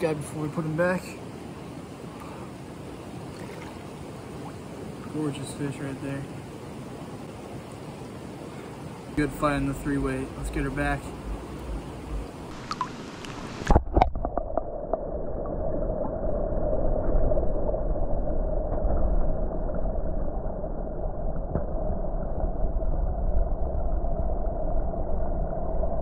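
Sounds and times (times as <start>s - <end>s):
muffled underwater rush: 8.4s - 26.0s.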